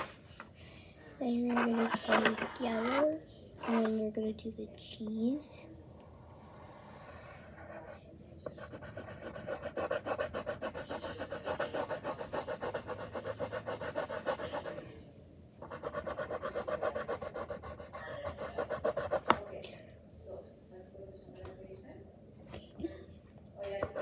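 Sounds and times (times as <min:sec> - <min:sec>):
scribbling on paper: 0:08.5 - 0:15.0, 0:15.6 - 0:19.5.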